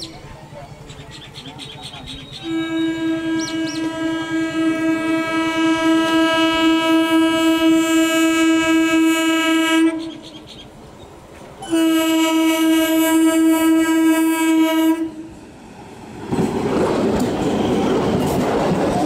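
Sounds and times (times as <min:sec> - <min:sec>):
train horn blast: 0:02.4 - 0:10.2, 0:11.6 - 0:15.4.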